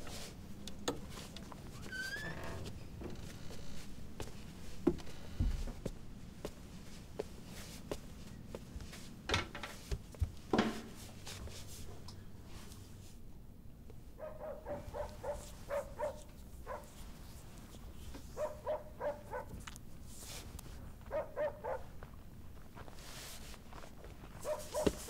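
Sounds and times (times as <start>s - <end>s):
dog barking: 14.2s - 17.0s, 18.4s - 19.6s, 21.1s - 21.9s, 24.4s - 25.0s.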